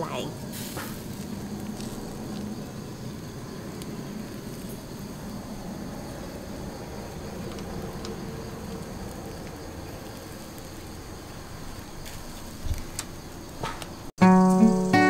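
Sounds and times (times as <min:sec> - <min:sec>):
fish roasting over embers: 0:00.0 - 0:14.1
strummed acoustic guitar music: 0:14.2 - 0:15.0.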